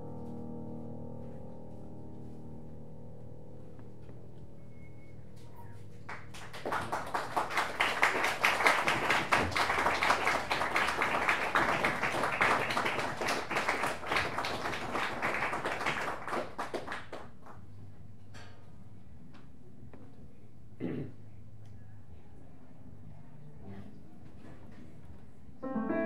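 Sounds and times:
audience applauding: 6.0 - 17.6
ringing musical notes: 25.6 - 26.0.

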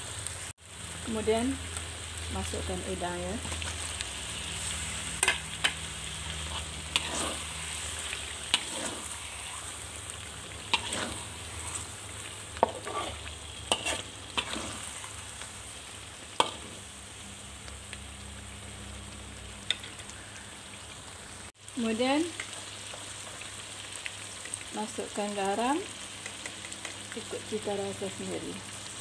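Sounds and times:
prawns sizzling in a wok: 0.0 - 29.0
spatula scraping and knocking pan: 6.4 - 7.5, 8.5 - 9.6, 10.7 - 11.9, 12.6 - 15.1.

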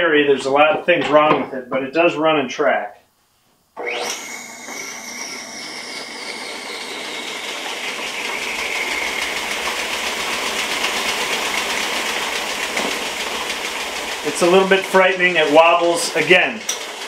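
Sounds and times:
bandsaw running with fast pulsing: 3.8 - 17.0.

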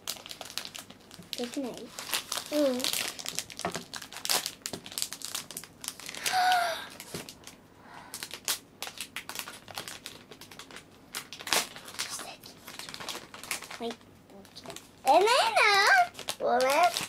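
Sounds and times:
plastic wrapper crinkling and tearing: 0.0 - 17.0
child exclaiming: 15.1 - 17.0.

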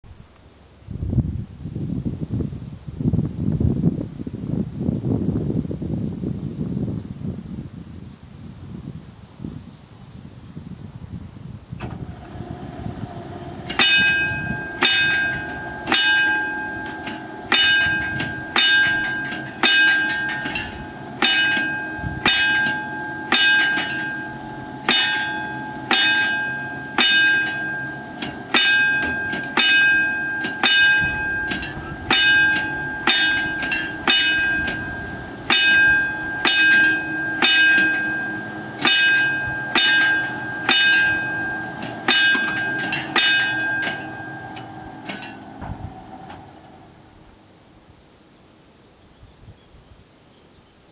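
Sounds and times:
level-crossing warning bell ringing: 11.8 - 47.4.

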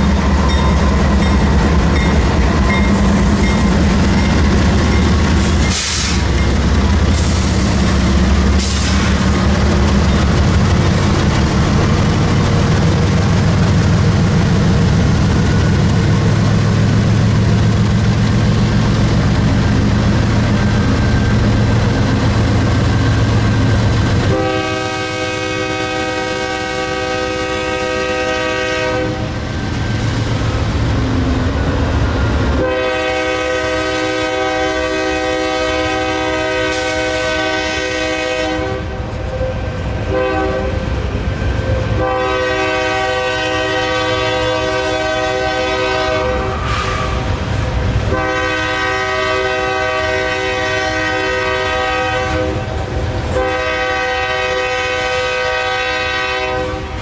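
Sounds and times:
train rumbling: 0.0 - 57.0
locomotive air horn blasts: 24.2 - 29.4, 32.6 - 40.9, 41.7 - 47.4, 48.1 - 57.0.

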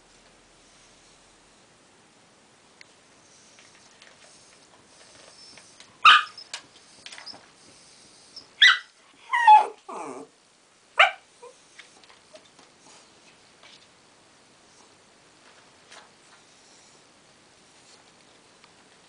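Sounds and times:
dog barking: 6.0 - 6.4, 8.6 - 8.9, 11.0 - 11.3.

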